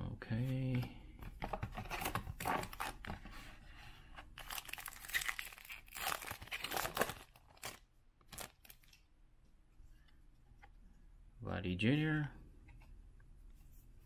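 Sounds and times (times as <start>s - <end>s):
foil wrapper crinkling and tearing: 4.4s - 9.0s.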